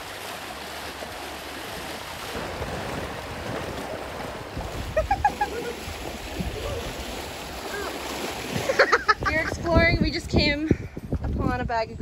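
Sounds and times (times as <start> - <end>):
lake waves washing against rocks: 0.0 - 11.6
wind on microphone: 2.1 - 12.0.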